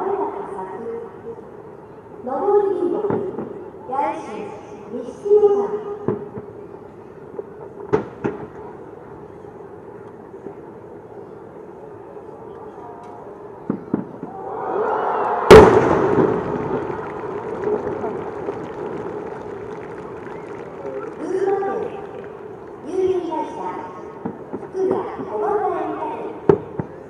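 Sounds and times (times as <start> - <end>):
firework crackling: 15.5 - 22.8.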